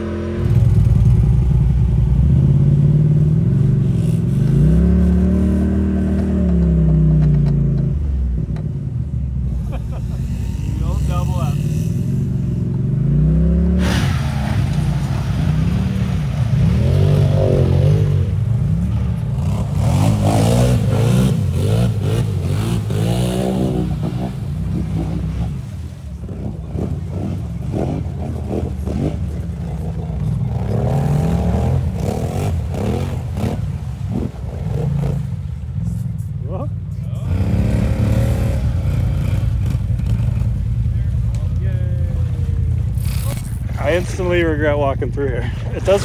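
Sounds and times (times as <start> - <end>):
quad engine revving: 0.0 - 7.9, 9.6 - 25.7, 26.3 - 35.4, 37.2 - 40.9
tyres churning mud: 9.5 - 36.2, 37.2 - 46.0.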